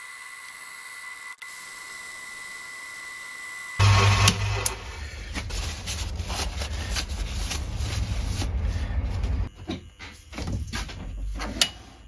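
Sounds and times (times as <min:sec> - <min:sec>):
lathe humming: 0:02.4 - 0:05.5.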